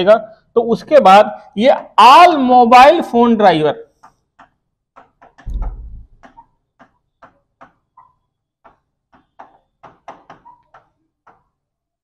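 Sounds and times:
marker pen squeaking on board: 3.9 - 5.5, 6.1 - 11.6.

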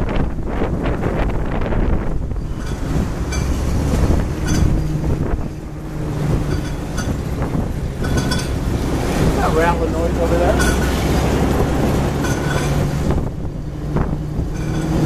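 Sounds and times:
vehicle engine droning: 2.2 - 15.0
high squeaks: 6.4 - 8.6.

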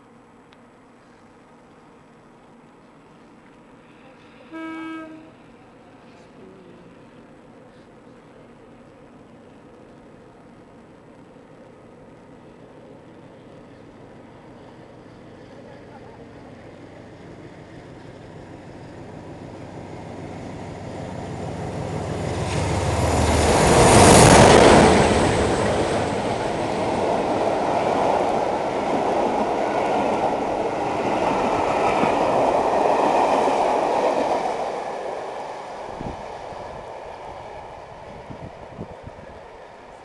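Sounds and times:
diesel locomotive engine passing: 10.9 - 40.0
coaches rumbling on rails: 12.7 - 40.0.

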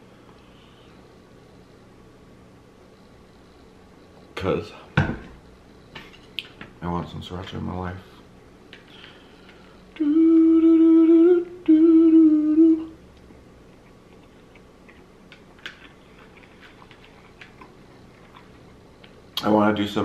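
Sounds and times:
man humming: 9.9 - 13.0.

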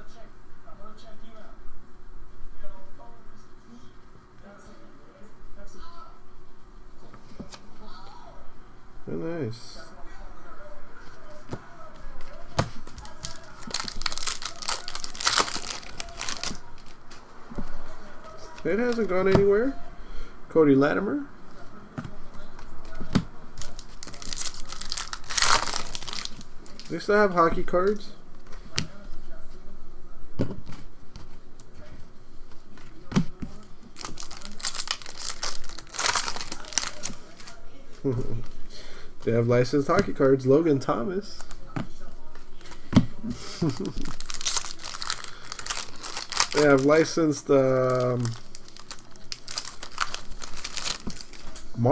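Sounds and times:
foil wrapper crinkling and tearing: 12.8 - 17.0, 23.6 - 27.1, 34.0 - 37.6, 43.5 - 51.7.

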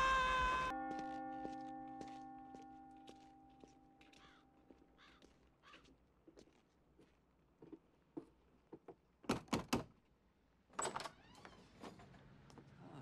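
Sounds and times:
door opening with a squeak: 10.8 - 12.1.

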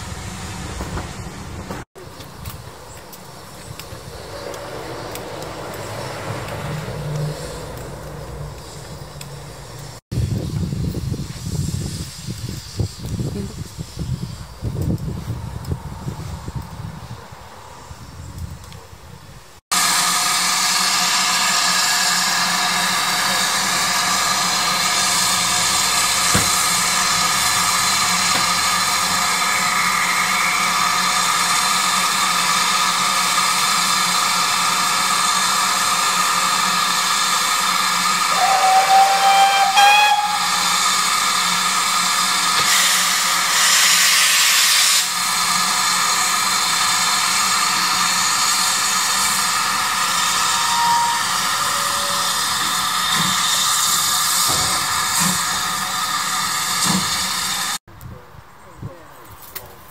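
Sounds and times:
rush of steam: 0.0 - 57.8
steam locomotive hissing: 0.0 - 57.8
steam whistle: 19.8 - 57.8.

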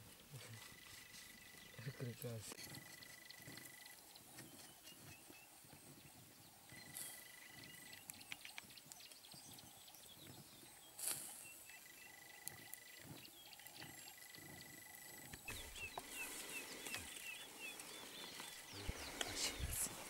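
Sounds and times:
fire popping: 6.6 - 20.0
wood fire crackling: 7.9 - 20.0.

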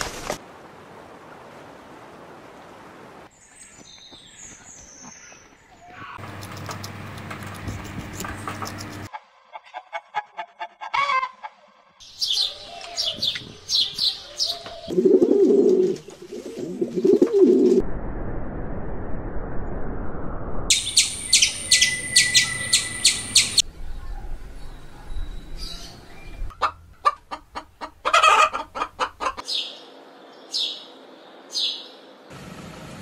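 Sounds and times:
small birds chirping: 3.3 - 9.1, 12.0 - 15.0, 20.7 - 26.5
chickens clucking: 6.2 - 11.8, 26.4 - 29.5
pigeons cooing: 12.3 - 17.8
rapid high chirping: 20.7 - 23.6.

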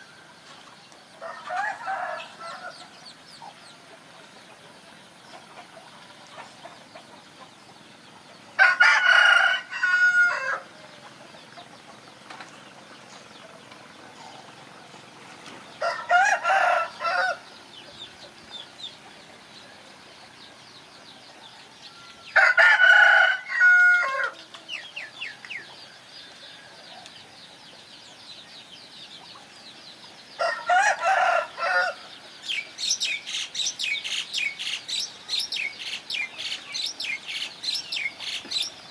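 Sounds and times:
small birds chirping: 0.0 - 38.9
rooster crowing: 1.2 - 2.8, 8.6 - 10.7, 15.8 - 17.5, 21.5 - 24.4, 30.4 - 32.1.

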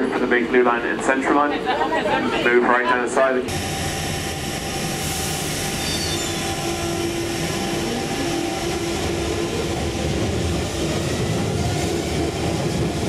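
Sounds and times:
train rumble and hiss: 0.0 - 13.0
faint high squeal: 5.7 - 6.6.

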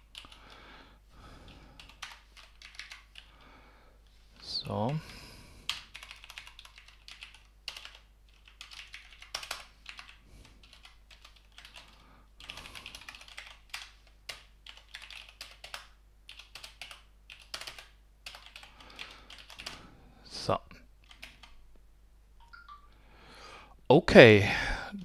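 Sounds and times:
typing on computer keyboard: 0.0 - 0.6, 1.4 - 3.5, 5.7 - 19.8, 21.0 - 21.6.

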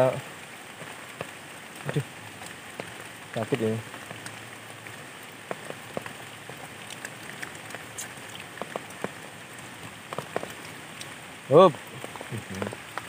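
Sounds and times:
rain falling on water: 0.0 - 13.0.

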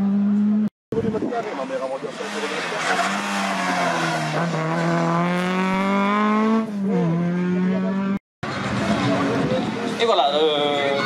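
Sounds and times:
rally car engine revving: 1.5 - 10.0.

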